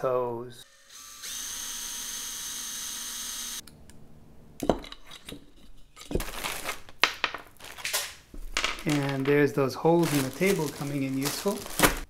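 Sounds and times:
cordless drill running: 0.7s - 3.6s.

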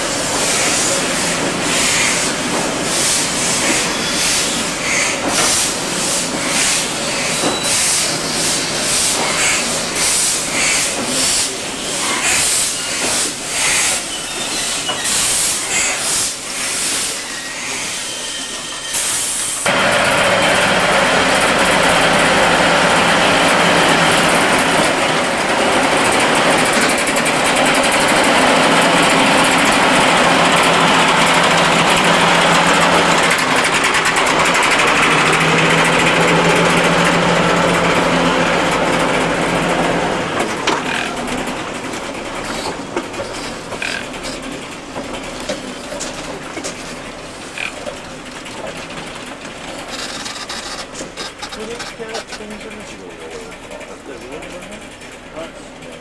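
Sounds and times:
diesel locomotive engine idling: 0.0s - 18.8s, 19.6s - 56.0s
scattered clicks: 49.9s - 52.5s.

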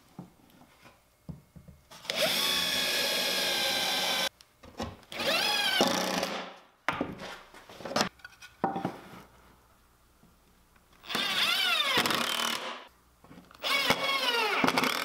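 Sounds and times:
cordless drill boring into wood: 2.1s - 4.3s, 5.2s - 6.3s, 11.1s - 12.8s, 13.6s - 15.0s.

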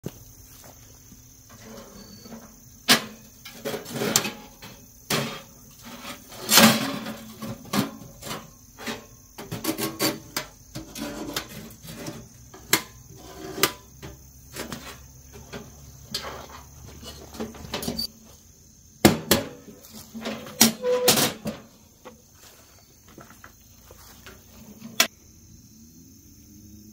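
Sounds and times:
metal stove clanking and rattling: 1.6s - 18.1s, 19.0s - 21.8s.

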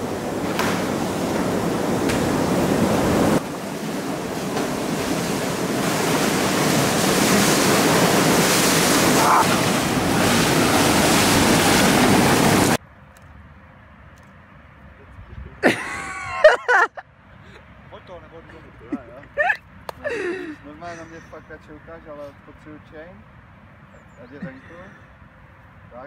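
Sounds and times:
water splashing and churning: 0.0s - 12.8s.

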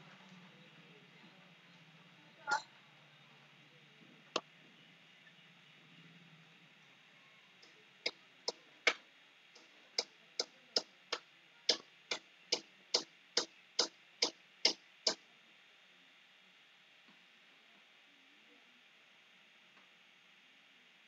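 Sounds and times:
sharp short clicks: 9.6s - 15.2s.

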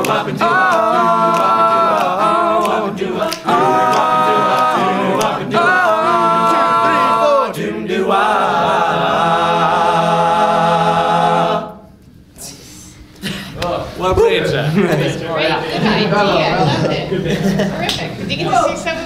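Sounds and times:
male a cappella group singing: 0.0s - 11.9s.

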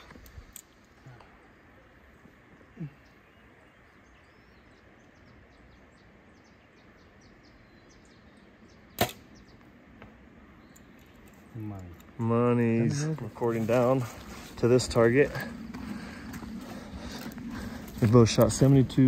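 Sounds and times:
bowstring release crack: 9.0s - 9.3s.

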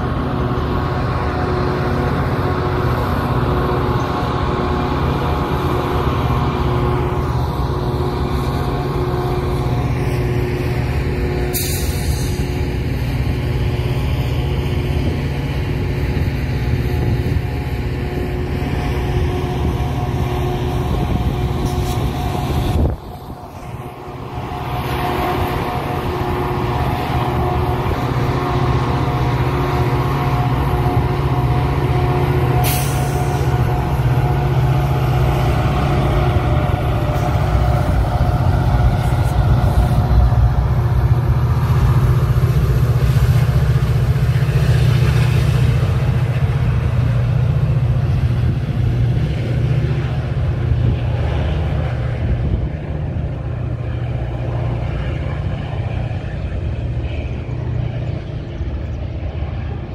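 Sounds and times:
diesel locomotive engine drone: 0.0s - 59.9s
air hisses: 11.5s - 12.5s.

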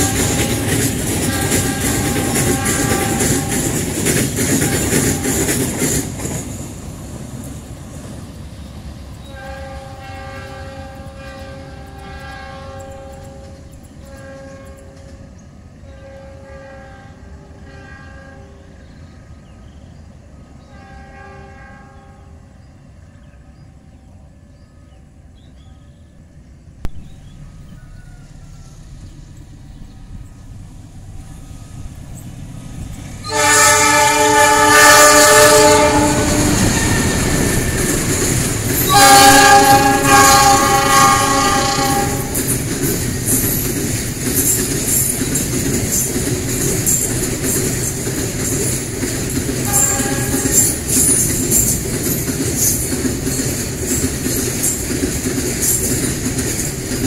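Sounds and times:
locomotive air horn blasts: 0.0s - 3.9s, 4.6s - 5.6s, 9.3s - 15.0s, 15.8s - 18.7s, 20.7s - 22.4s, 33.2s - 37.9s, 38.8s - 42.4s, 49.6s - 50.7s
freight train rumble: 0.0s - 57.0s.

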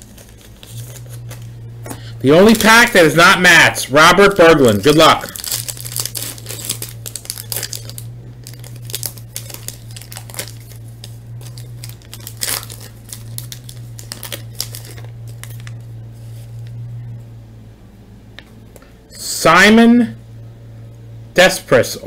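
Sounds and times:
foil wrapper crinkling and tearing: 0.0s - 1.5s, 2.3s - 3.2s, 4.3s - 15.8s
low hum: 0.0s - 22.0s.

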